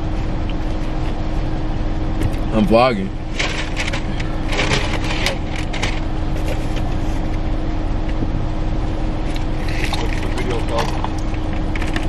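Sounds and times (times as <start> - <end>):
low hum in car cabin: 0.0 - 12.0
crackling rustles: 3.3 - 8.2.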